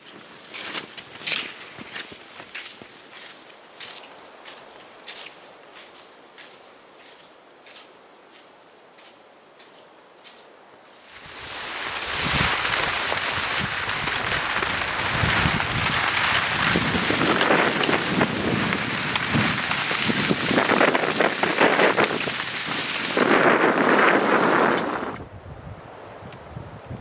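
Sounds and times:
skis hissing on snow: 11.0s - 25.2s.

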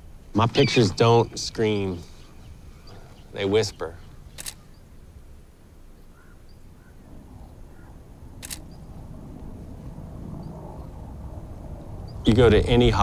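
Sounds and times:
low ambient rumble: 0.0s - 13.0s
camera shutter click: 4.3s - 4.7s, 8.4s - 8.8s.

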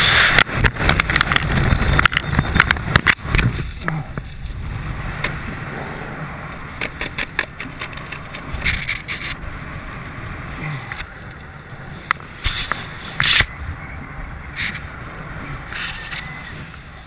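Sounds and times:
parachute flaps and clicks: 0.0s - 5.4s, 6.6s - 9.4s, 12.1s - 13.5s
wind rushing over microphone: 0.0s - 17.0s.

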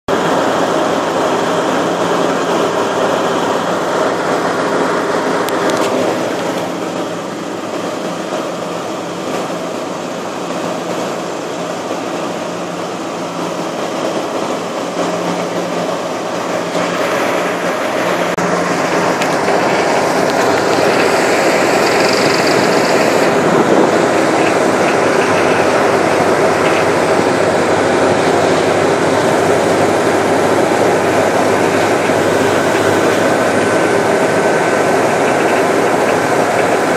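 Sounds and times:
ferry engines droning: 0.1s - 36.9s
water rushing: 0.1s - 36.9s
wind rushing: 18.6s - 36.9s.

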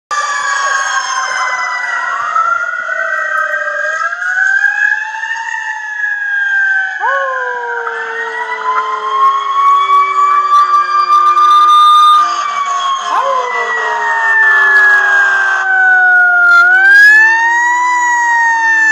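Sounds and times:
emergency vehicle sirens wailing: 0.1s - 18.9s.

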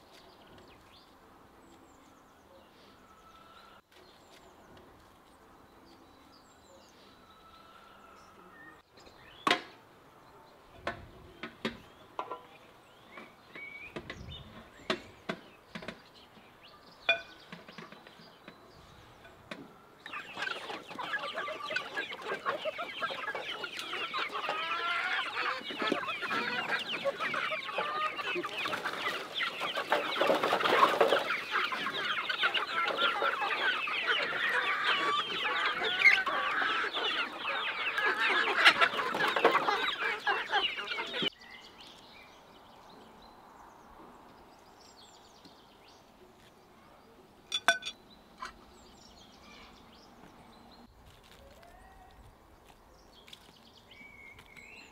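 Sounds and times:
chickens clucking and squawking: 17.1s - 41.4s, 47.0s - 50.2s.

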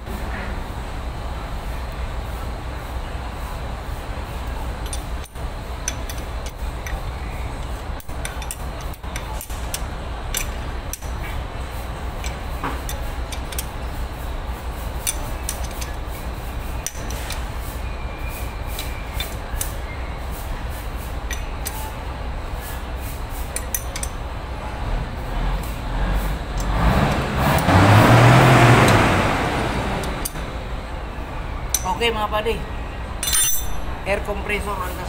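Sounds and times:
wrench clinking on metal: 4.8s - 11.3s, 12.2s - 13.9s, 15.0s - 16.1s, 16.8s - 17.5s, 18.4s - 19.8s, 21.3s - 21.9s, 23.4s - 24.2s, 30.0s - 30.4s, 31.7s - 32.2s, 33.2s - 34.3s.

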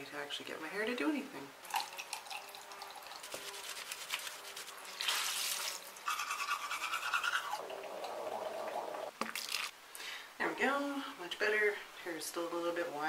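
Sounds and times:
running splashing water: 1.7s - 5.9s
scrubbing with wet washcloth: 3.0s - 7.6s
water splash: 5.0s - 5.9s.

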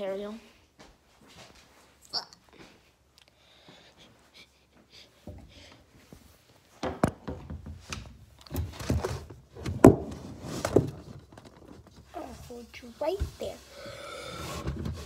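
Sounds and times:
knocks and thumps: 6.8s - 12.2s.

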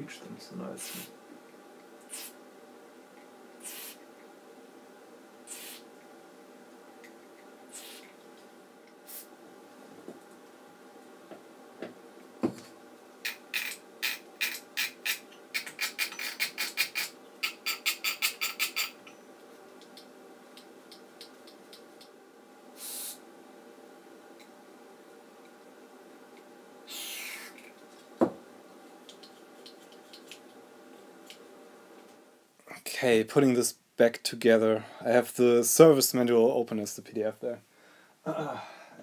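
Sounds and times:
spray can hissing: 0.8s - 1.1s, 2.1s - 2.4s, 3.6s - 4.0s, 5.5s - 5.8s, 7.7s - 8.1s, 22.8s - 23.2s.

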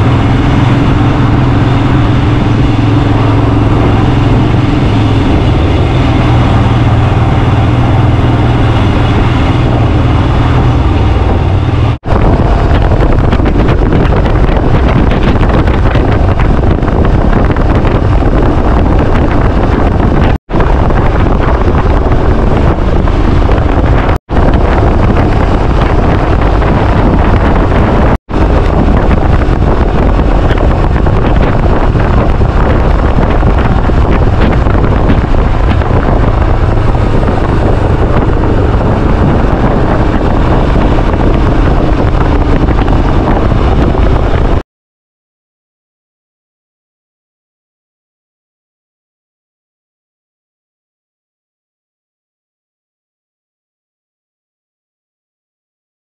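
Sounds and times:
motorcycle engine running: 0.0s - 44.6s
wind rushing on microphone: 0.0s - 44.6s.

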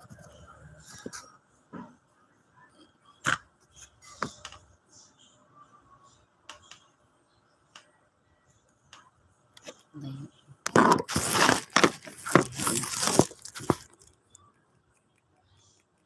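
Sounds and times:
small objects clicking and tapping: 10.7s - 16.0s.

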